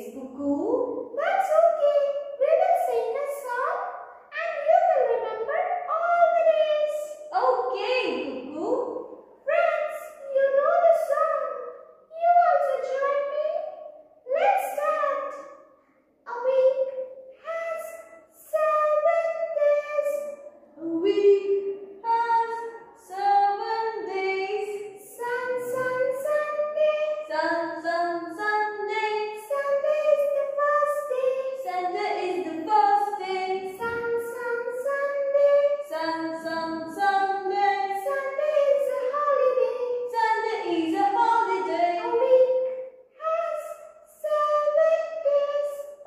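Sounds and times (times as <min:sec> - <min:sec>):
high voice singing children's song: 0:16.3 - 0:45.9.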